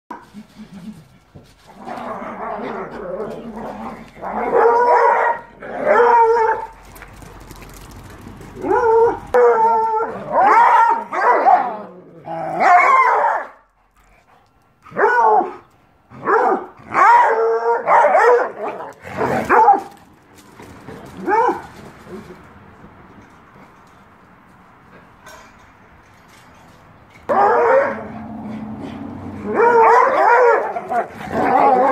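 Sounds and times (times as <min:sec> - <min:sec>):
dogs barking in play: 0:00.1 - 0:07.8, 0:08.5 - 0:13.7, 0:14.8 - 0:22.5, 0:27.3 - 0:31.9.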